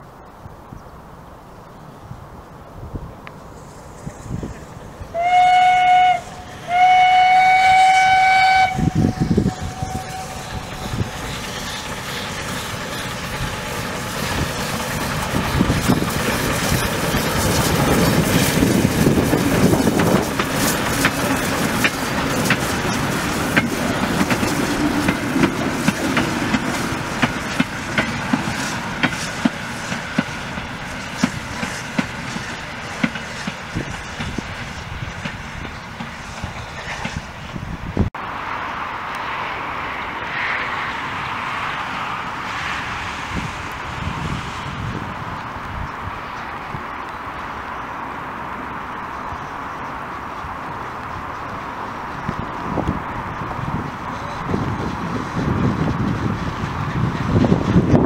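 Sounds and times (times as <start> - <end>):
steam locomotive running past: 2.6 - 58.0
steam whistle blasts: 5.1 - 11.1
carriages clicking over rails: 8.3 - 37.6, 45.4 - 58.0.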